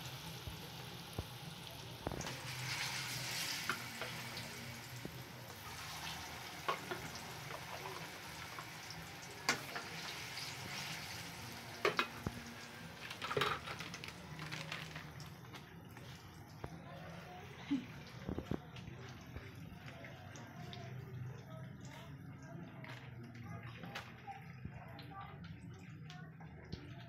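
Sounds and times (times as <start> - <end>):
frying hiss: 0.0 - 21.2
oil popping and crackling: 0.2 - 16.8.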